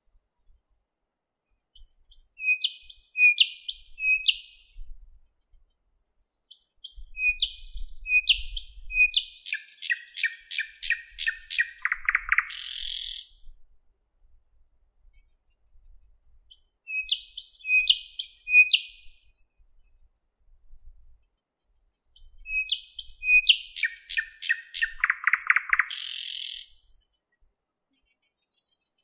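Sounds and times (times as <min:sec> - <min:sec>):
bird singing whistled notes: 0:01.8 - 0:05.0, 0:06.4 - 0:13.6, 0:16.5 - 0:19.5, 0:22.0 - 0:27.0.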